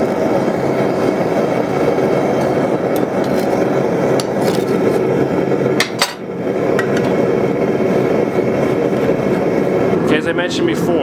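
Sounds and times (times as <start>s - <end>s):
gas forge burner roaring: 0.0s - 11.0s
sharp metal clank: 5.8s - 7.1s.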